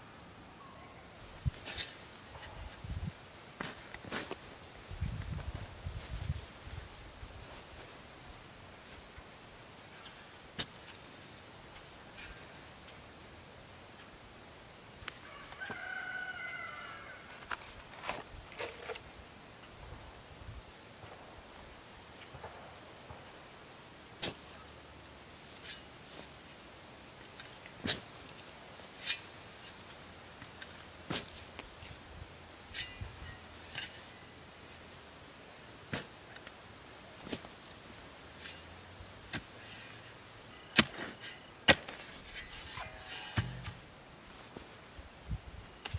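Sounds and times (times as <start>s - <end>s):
footsteps: 41.7s - 44.7s.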